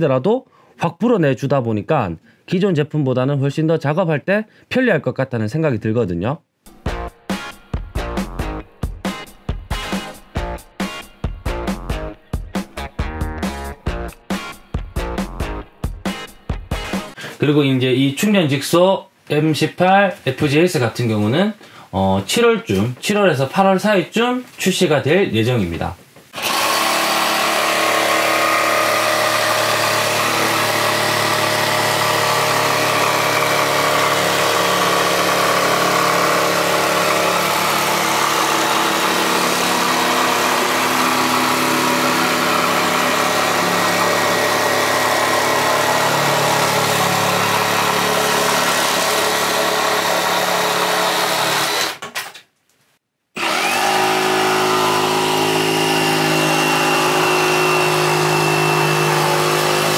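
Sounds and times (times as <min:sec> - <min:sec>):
jigsaw sawing through wood: 0:26.3 - 0:52.1, 0:53.4 - 0:59.9
second jigsaw starting up: 0:26.4 - 0:52.2, 0:53.4 - 0:59.9.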